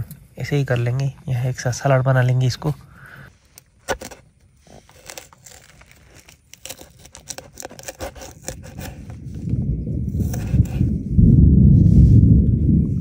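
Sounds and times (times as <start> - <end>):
low rumble: 8.4 - 13.0.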